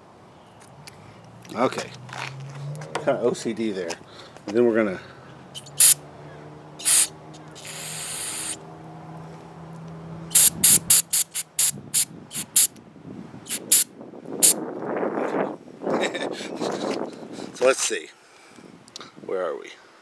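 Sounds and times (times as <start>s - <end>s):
aerosol spray hissing: 5.7s - 6.0s, 6.8s - 8.6s, 10.3s - 12.7s, 13.5s - 14.6s.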